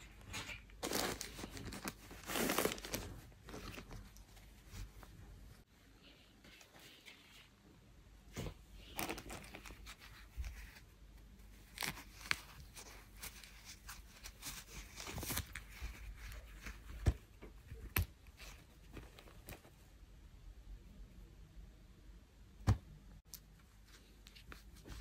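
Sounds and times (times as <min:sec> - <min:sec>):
packaging tearing and crinkling: 0:00.8 - 0:03.9.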